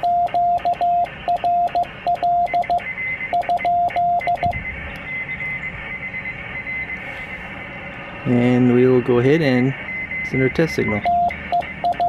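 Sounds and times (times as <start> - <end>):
keying clicks: 0.0 - 5.1, 11.0 - 12.0
morse code tone: 0.0 - 12.0.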